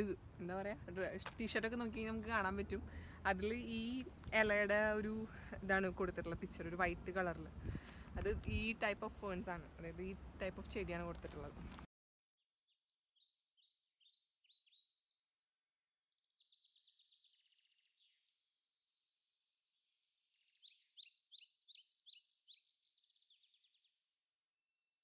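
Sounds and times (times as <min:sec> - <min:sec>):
songbirds chirping and trilling: 0:12.6 - 0:25.0.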